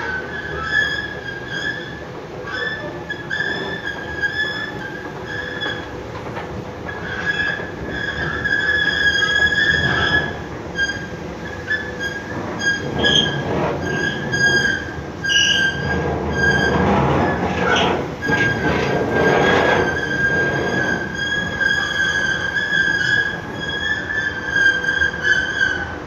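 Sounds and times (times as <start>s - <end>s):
mechanical rumble: 3.7s - 24.1s.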